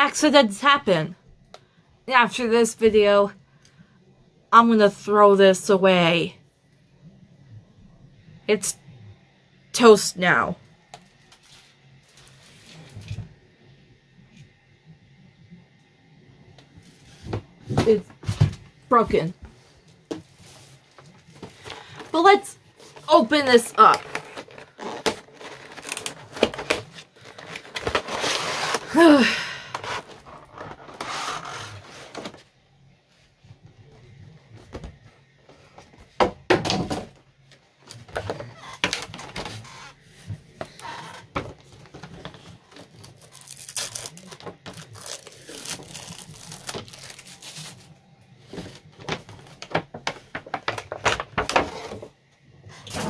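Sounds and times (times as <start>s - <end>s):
plastic wrapping crinkling and tearing: 22.8s - 29.1s, 42.1s - 47.9s
packaging knocks and scrapes: 23.9s - 28.9s.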